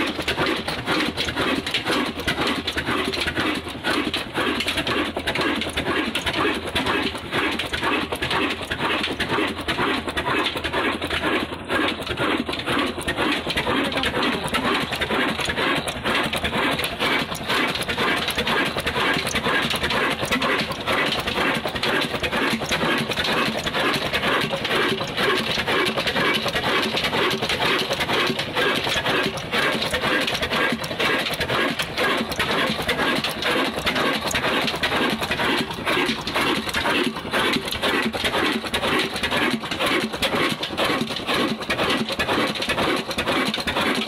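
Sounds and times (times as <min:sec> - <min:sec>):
diesel engine clattering: 0:00.0 - 0:44.0.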